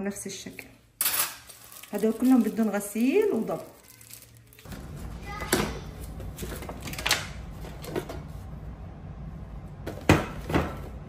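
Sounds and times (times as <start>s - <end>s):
steady low hum: 4.7s - 11.0s.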